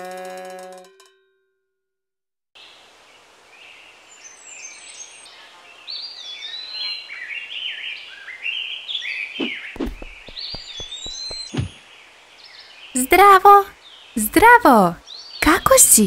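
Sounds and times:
birds chirping and warbling: 2.6 - 16.0
steady outdoor hiss: 2.6 - 16.0
low thump: 9.8 - 11.8.

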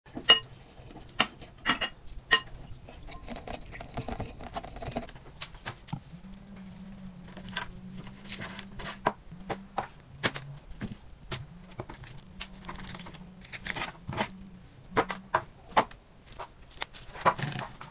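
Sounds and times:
handling noises: 0.2 - 17.9.

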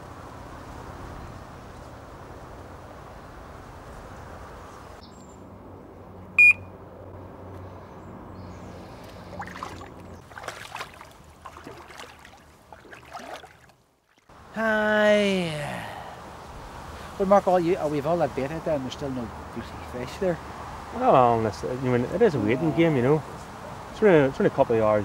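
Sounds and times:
outdoor background: 0.0 - 25.0
high-pitched alarm beep: 6.4 - 6.7.

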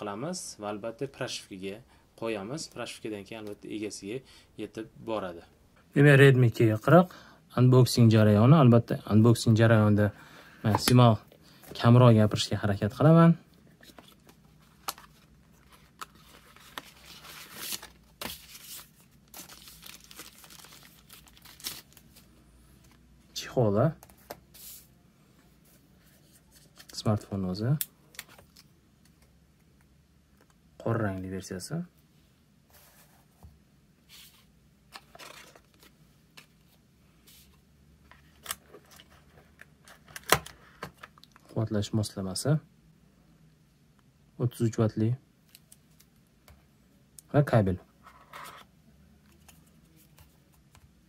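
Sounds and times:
cardboard and plastic rustling: 13.8 - 23.0, 34.9 - 37.5.

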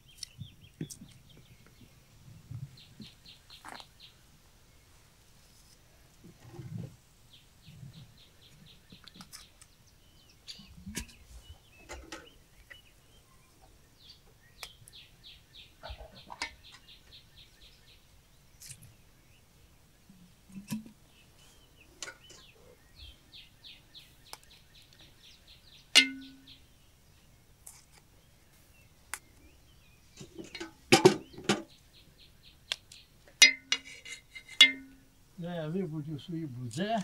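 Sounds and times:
songbird trilling: 22.0 - 26.8.

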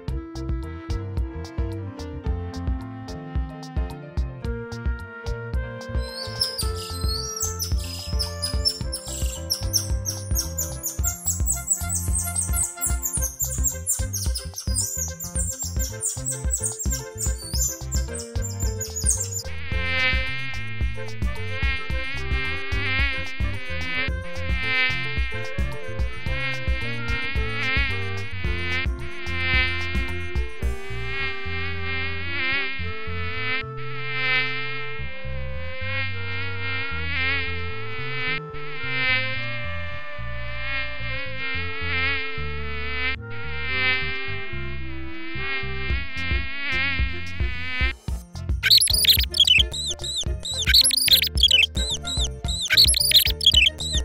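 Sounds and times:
flying insect buzzing: 6.0 - 34.8, 48.6 - 54.0.

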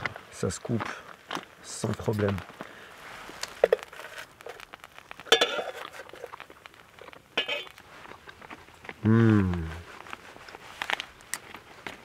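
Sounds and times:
cutlery scraping metal pan: 7.4 - 7.7.

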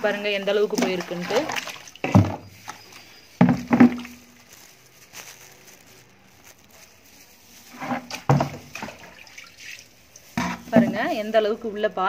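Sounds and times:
water swishing in a plastic mug: 0.0 - 4.9, 6.8 - 11.4.

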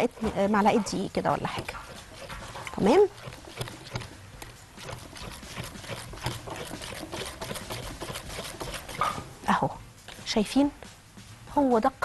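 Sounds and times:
batter stirred in glass bowl: 0.8 - 9.3.

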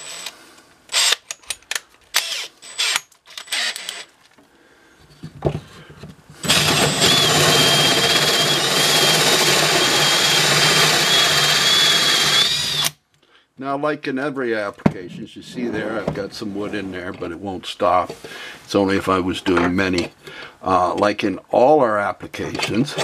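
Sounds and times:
cordless drill with hole saw cutting: 0.0 - 1.2, 2.2 - 4.1, 6.4 - 13.0.

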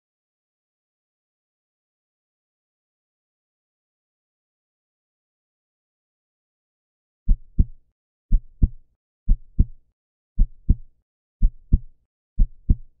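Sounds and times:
heartbeat thumps: 7.3 - 9.8, 10.4 - 13.0.

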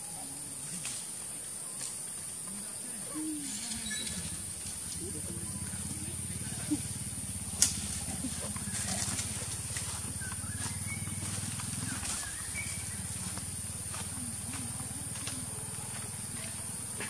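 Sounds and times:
low steady rumble: 4.1 - 16.9.

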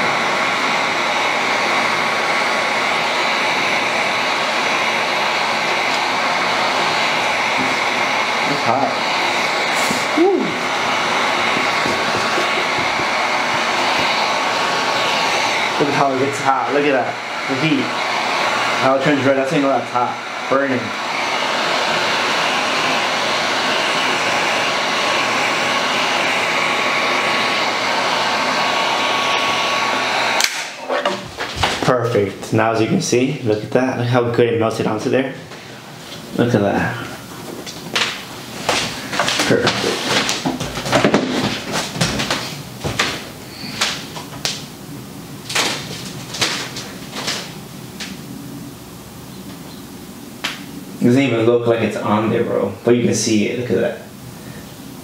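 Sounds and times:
heat gun blowing hot air: 0.0 - 33.2, 34.9 - 48.7.

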